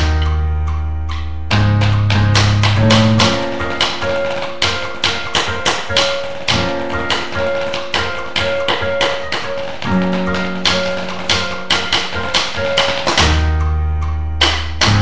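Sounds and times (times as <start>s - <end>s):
piano music with held notes: 0.0s - 15.0s.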